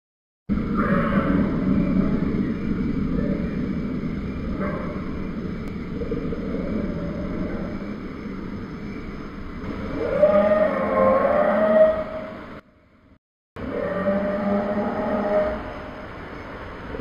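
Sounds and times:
dinosaur roar: 0.7s - 2.3s, 5.9s - 8.0s, 9.7s - 12.4s, 13.6s - 16.0s.

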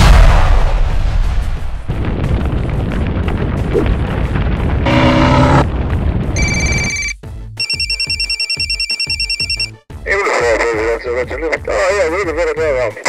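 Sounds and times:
fire roaring: 0.0s - 6.4s
alarm bell ringing rapidly: 6.4s - 9.7s.

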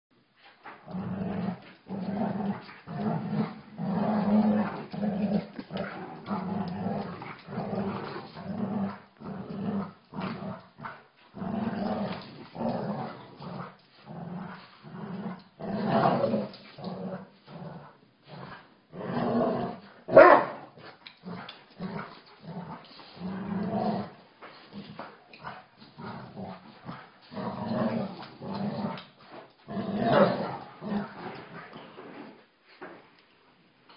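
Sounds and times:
dogs growling: 0.6s - 32.4s
dog barking sharply: 20.2s - 20.6s.

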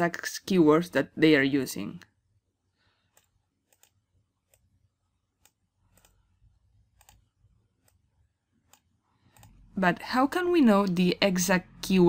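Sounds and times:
computer mouse clicks: 3.1s - 4.7s, 5.4s - 6.3s, 6.9s - 9.6s.

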